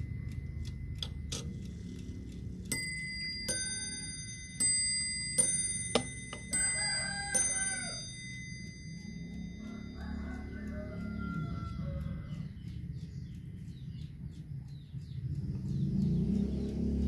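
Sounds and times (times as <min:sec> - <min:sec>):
clock bell striking: 0:00.0 - 0:12.5
clock hands clicking: 0:00.0 - 0:17.0.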